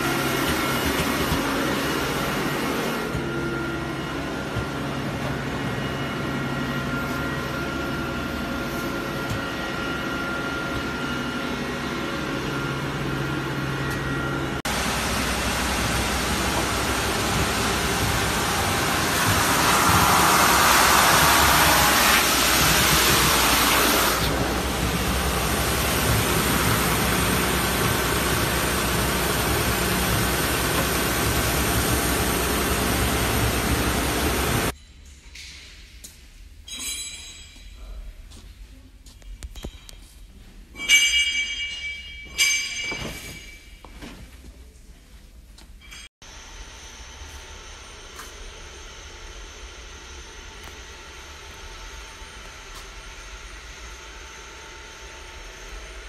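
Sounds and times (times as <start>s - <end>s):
planer sander humming: 0.0s - 34.7s.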